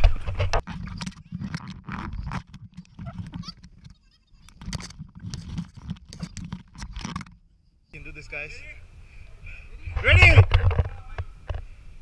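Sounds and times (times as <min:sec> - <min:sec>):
vinyl squeaks and rubbing: 0:00.0 - 0:06.7.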